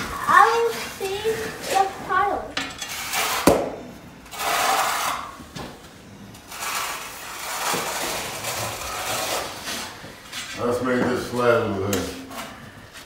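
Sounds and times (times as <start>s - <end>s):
tile scraping in mortar: 0.0s - 3.6s, 4.2s - 5.4s, 6.4s - 10.0s.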